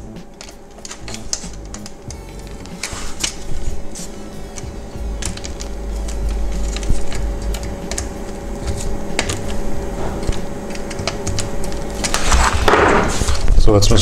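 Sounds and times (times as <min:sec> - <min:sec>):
low hum: 0:00.0 - 0:14.0
plastic parts clicking together: 0:00.4 - 0:03.4.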